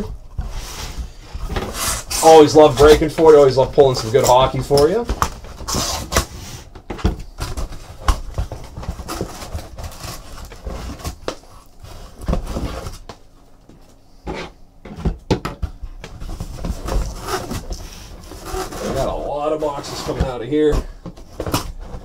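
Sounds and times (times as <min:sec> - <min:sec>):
cardboard and plastic wrap scraping: 0:00.0 - 0:13.1, 0:16.1 - 0:22.0.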